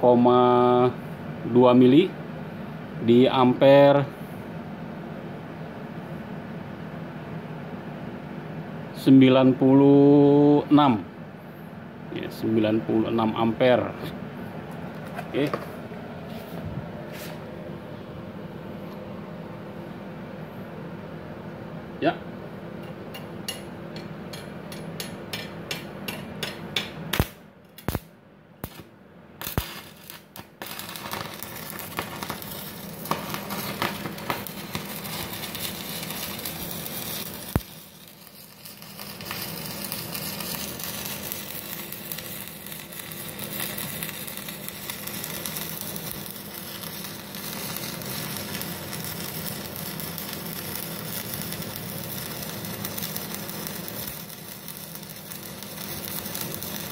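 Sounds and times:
welding arc crackling: 0:26.8 - 0:56.9.

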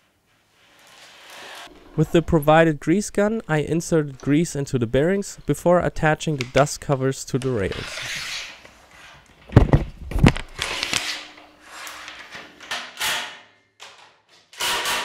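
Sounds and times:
plastic rubbing and scraping: 0:06.3 - 0:13.1.

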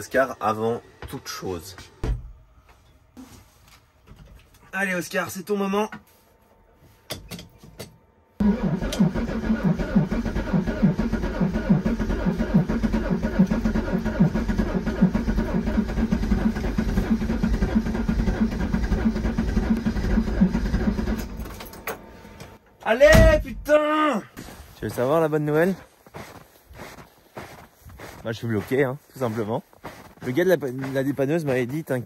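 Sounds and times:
starter motor cranking engine: 0:08.4 - 0:21.5.

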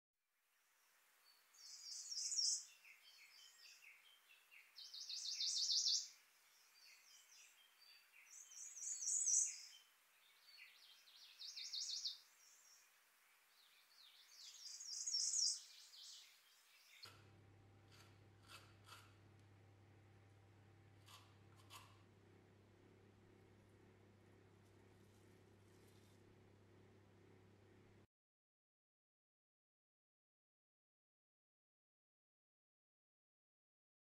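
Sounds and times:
songbird singing high phrases: 0:01.3 - 0:17.1
soft bird twittering: 0:01.6 - 0:17.2.

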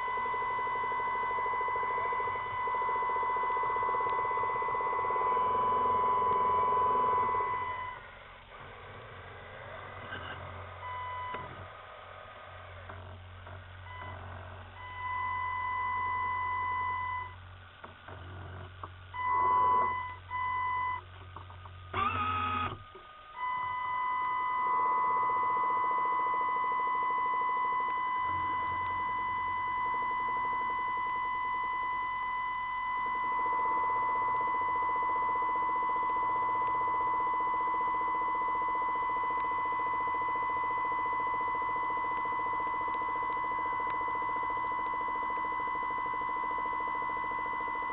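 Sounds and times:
high-pitched electric whine: 0:00.0 - 0:11.6, 0:21.8 - 0:47.9.

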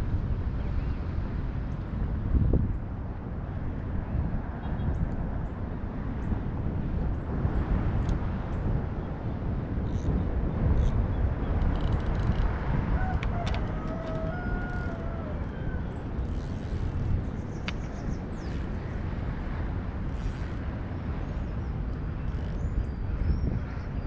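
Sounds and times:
wind rumbling on microphone: 0:00.0 - 0:24.0
faint clicks: 0:11.6 - 0:15.1.

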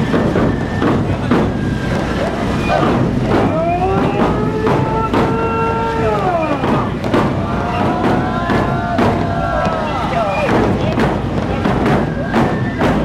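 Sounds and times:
taiko drum beats: 0:00.0 - 0:13.0
voices chanting long calls: 0:02.4 - 0:11.0.

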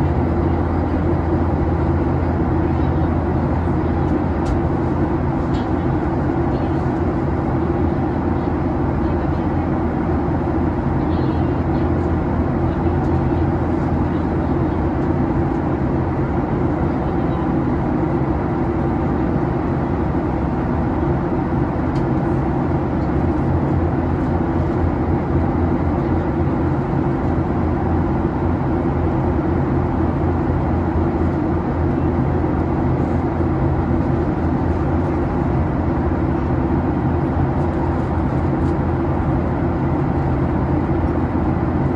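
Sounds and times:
airliner cabin drone: 0:00.0 - 0:41.9.

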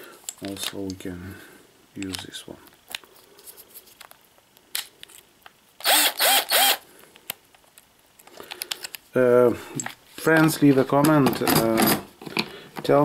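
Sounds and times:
impact driver motor whirring: 0:05.8 - 0:06.8.

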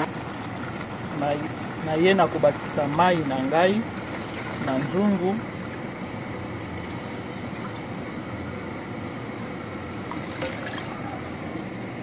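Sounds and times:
water pouring into pan: 0:09.9 - 0:11.3.

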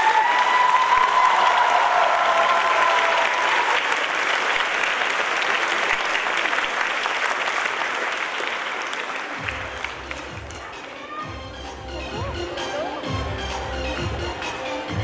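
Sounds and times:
crowd applauding: 0:00.0 - 0:11.3.

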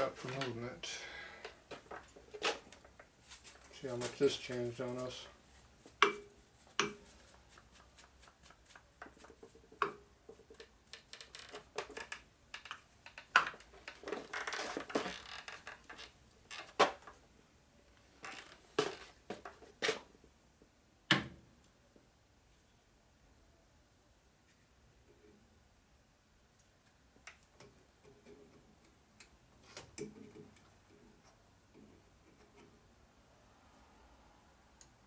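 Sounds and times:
scraping and rustling: 0:00.0 - 0:12.0.

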